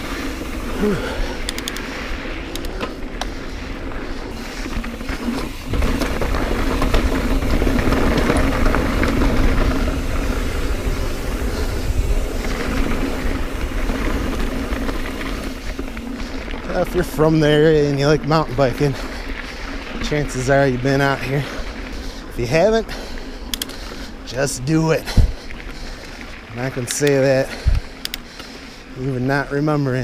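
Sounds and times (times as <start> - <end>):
bike clicks and rattles: 0.0 - 30.0
bike tyre noise: 0.0 - 30.0
wind on microphone: 5.6 - 16.0.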